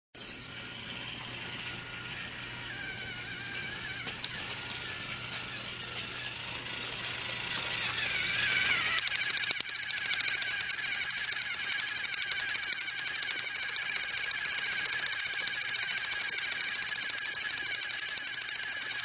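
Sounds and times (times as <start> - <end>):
toy train motor whining: 0.2 - 19.0
rapid even clicking: 5.9 - 19.0.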